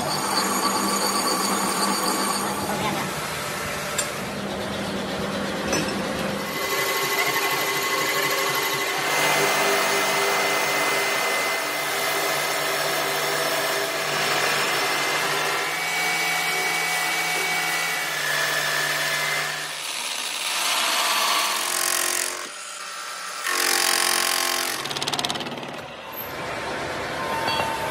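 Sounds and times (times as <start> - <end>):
metal lathe running: 0.0 - 12.8.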